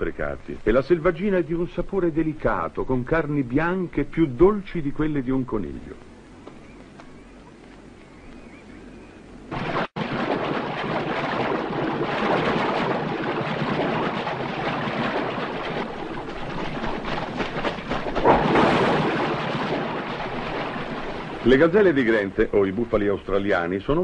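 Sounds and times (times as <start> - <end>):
animals splashing through water: 9.5 - 24.0.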